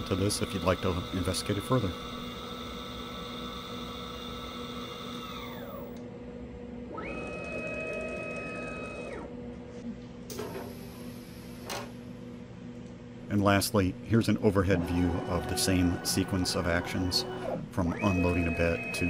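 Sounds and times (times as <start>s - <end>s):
router spindle whining: 0.0s - 6.0s, 14.7s - 19.0s
steady low hum: 0.0s - 7.1s, 8.6s - 19.0s.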